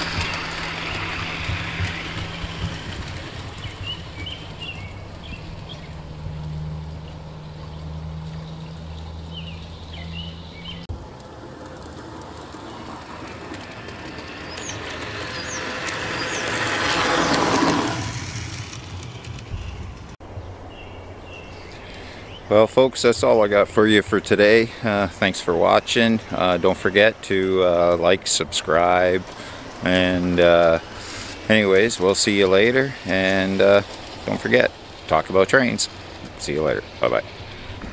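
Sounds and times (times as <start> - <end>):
model train motor hum: 0.0 - 6.9, 11.0 - 20.2, 25.9 - 37.9
birds chirping: 0.0 - 10.9, 11.7 - 37.9
wheels rumbling on rails: 0.0 - 37.9.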